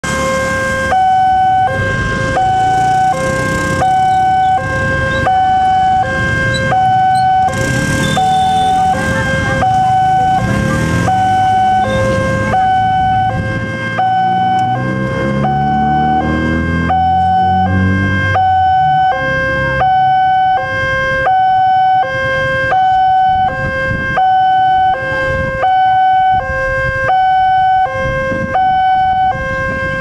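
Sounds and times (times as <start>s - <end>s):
motorcycle engines: 0.0s - 30.0s
two-tone crossing alarm: 0.0s - 30.0s.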